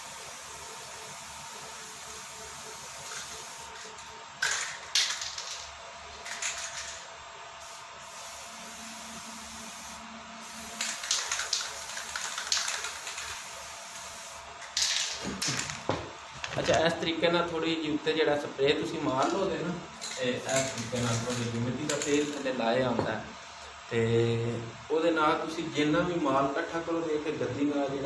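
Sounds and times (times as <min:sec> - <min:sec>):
spray-paint can hissing: 0:00.0 - 0:07.0, 0:07.6 - 0:15.7.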